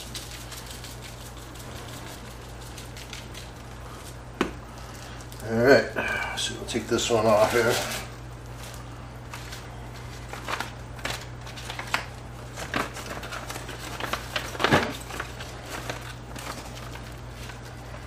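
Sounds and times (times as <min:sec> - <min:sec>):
plastic bag crinkling: 0:00.0 - 0:05.8, 0:07.0 - 0:18.0.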